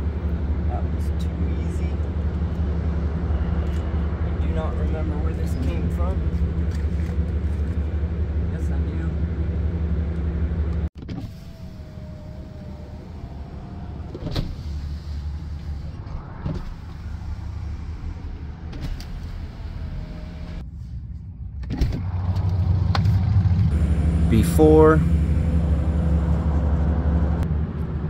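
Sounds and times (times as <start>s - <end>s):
low cabin hum: 2.8s - 22.5s
power window motor whining: 11.0s - 16.9s.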